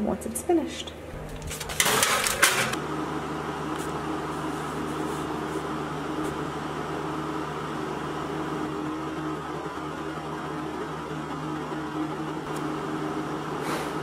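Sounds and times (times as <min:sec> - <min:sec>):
fan oven humming: 0:00.0 - 0:14.0
oven door shutting: 0:01.3 - 0:02.8
baking tray scraping oven rack: 0:01.4 - 0:02.8.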